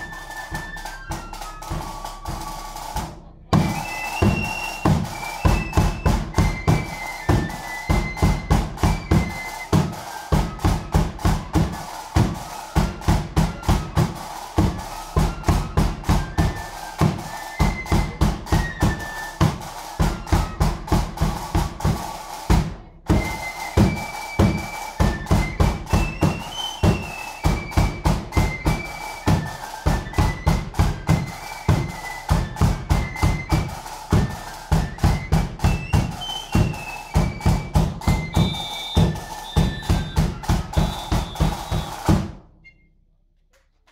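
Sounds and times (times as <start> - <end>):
bass drum beat and drums: 0.0 - 42.4
flute melody: 0.0 - 43.0.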